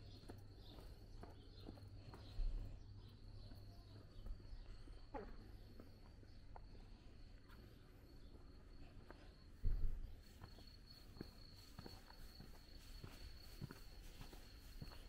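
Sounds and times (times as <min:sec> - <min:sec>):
footstep clicks: 0:08.3 - 0:15.0.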